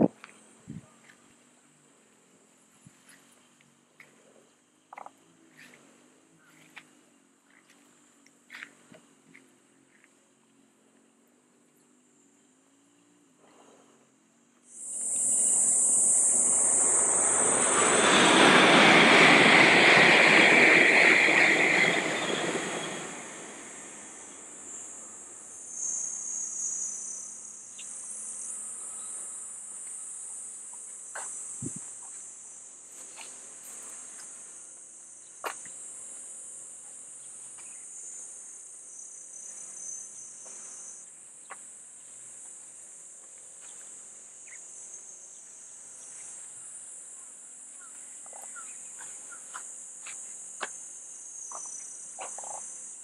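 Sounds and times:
high insect drone: 0:00.0 - 0:53.0
train passing on viaduct: 0:14.9 - 0:27.6.

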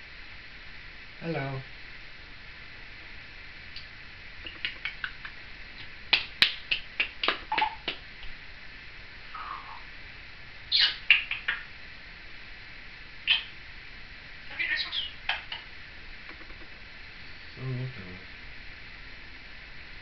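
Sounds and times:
parrot clicks and squeaky chirps: 0:04.4 - 0:06.5, 0:07.5 - 0:07.9, 0:10.7 - 0:11.7, 0:13.3 - 0:13.6, 0:14.6 - 0:15.7.

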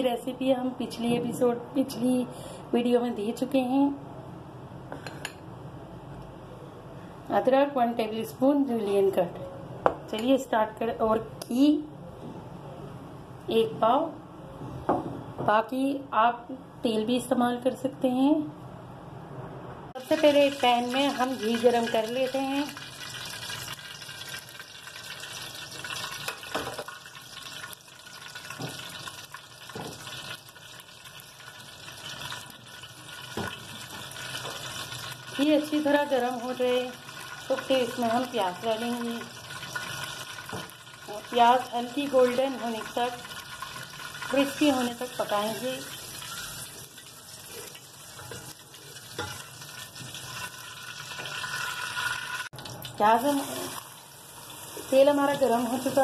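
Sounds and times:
ghee sizzling in a pot: 0:20.0 - 0:56.0.

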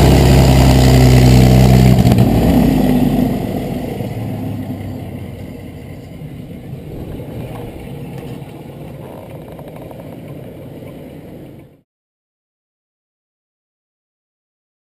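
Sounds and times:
propeller plane engine rumbling: 0:00.0 - 0:11.8.

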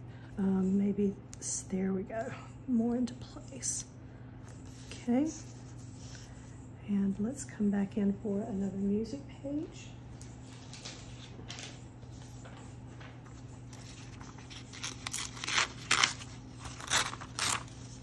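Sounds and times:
paper tearing: 0:13.8 - 0:18.0.

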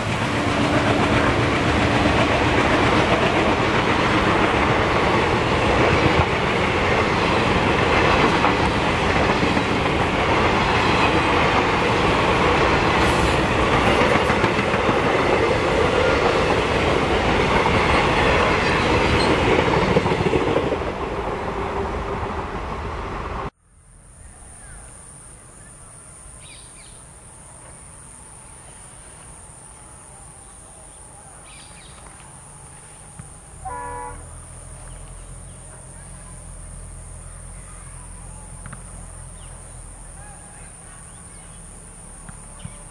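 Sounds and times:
train coaches rushing past: 0:00.0 - 0:23.5
high insect drone: 0:23.6 - 0:42.9.

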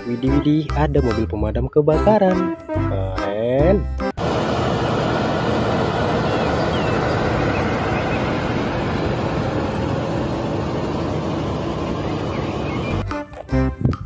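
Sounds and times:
high-pressure water rushing: 0:04.2 - 0:13.0
fire engine pump running: 0:04.2 - 0:13.1.

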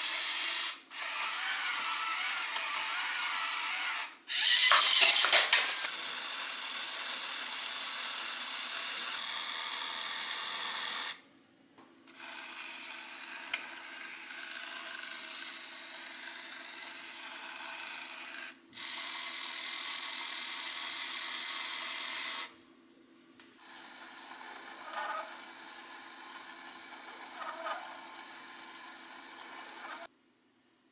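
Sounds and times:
toy motor whirring through gears: 0:00.0 - 0:11.2, 0:12.1 - 0:22.6, 0:23.6 - 0:30.1.

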